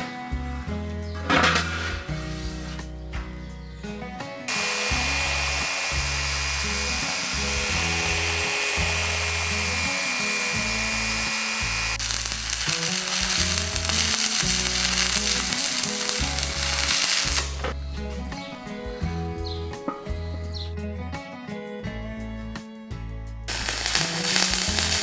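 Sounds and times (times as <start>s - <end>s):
music: 0.0s - 25.0s
grinder grinding steel: 1.2s - 2.9s, 4.5s - 17.8s, 23.5s - 25.0s
orbital sander whining: 4.5s - 17.8s, 23.5s - 25.0s.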